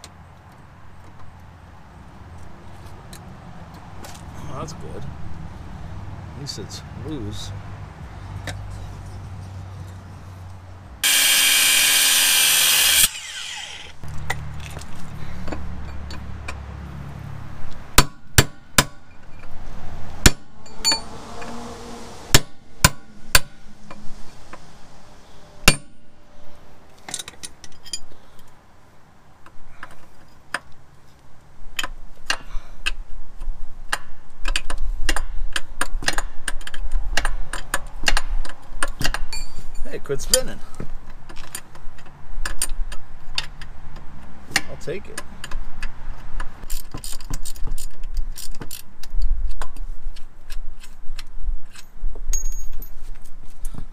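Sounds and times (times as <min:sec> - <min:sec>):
loud steady noise: 0:11.0 - 0:14.0.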